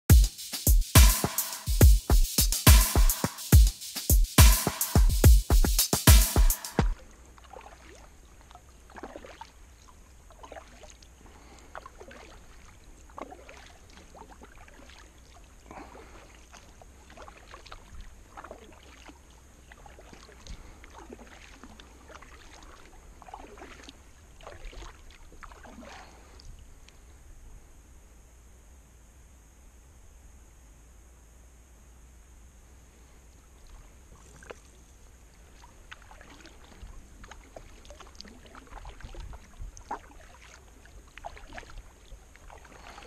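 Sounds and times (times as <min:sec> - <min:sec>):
kayak paddle splashing: 0:06.8 - 0:26.8, 0:33.4 - 0:43.0.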